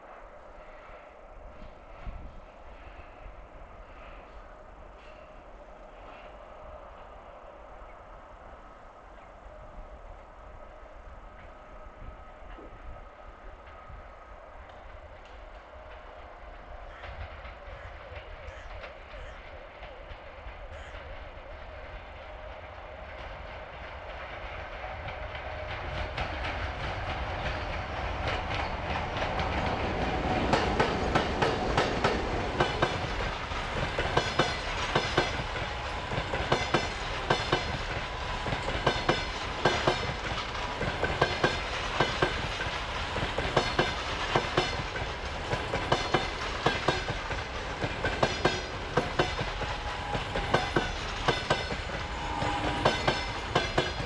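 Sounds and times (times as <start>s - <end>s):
train passing close by: 0.0s - 54.0s
wheels clacking over rail joints: 25.0s - 54.0s.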